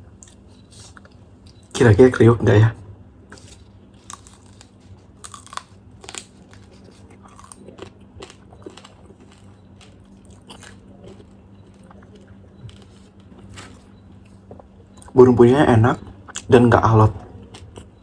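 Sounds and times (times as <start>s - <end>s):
biting and chewing: 3.3s - 15.2s.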